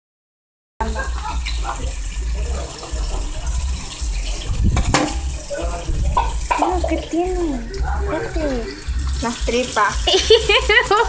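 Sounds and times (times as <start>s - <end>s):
water running: 0.8s - 11.0s
sharp knock: 4.7s - 5.3s.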